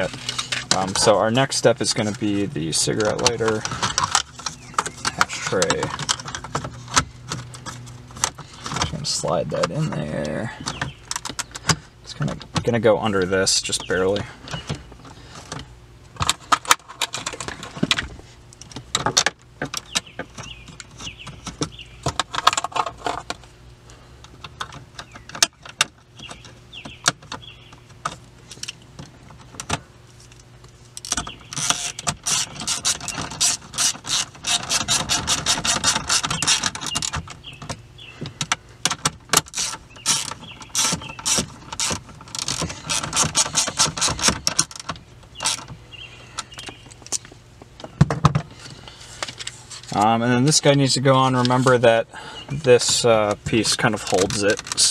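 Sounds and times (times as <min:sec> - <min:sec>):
hand ratchet clicking: 0:31.0 - 0:37.2, 0:39.4 - 0:44.8.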